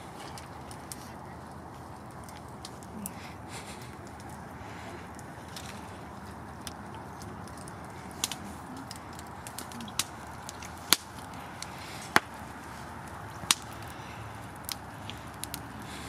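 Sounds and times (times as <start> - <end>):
sharp snaps or cracks: 6.6 - 16.0.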